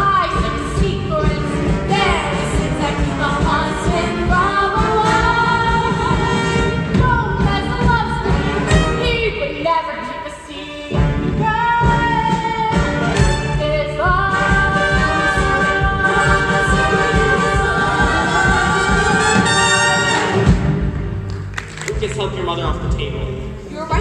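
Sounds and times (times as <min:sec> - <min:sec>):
woman singing a show tune: 0:00.0 - 0:12.9, 0:23.7 - 0:24.0
musical accompaniment: 0:00.0 - 0:24.0.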